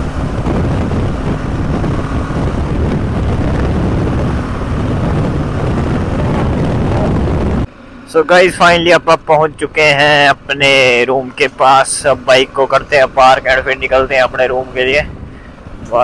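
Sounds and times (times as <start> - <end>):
wind rushing over microphone: 0.0 - 7.7, 8.6 - 16.0
motorcycle engine running: 0.0 - 16.0.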